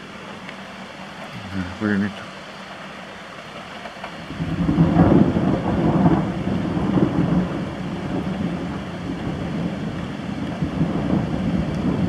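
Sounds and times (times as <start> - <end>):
rolling thunder: 4.3 - 12.0.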